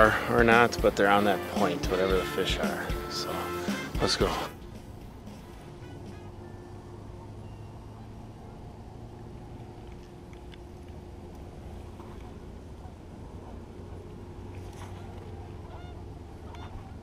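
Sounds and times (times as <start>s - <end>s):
distant engine hum: 0.0s - 17.0s
faint held tones: 3.0s - 12.4s.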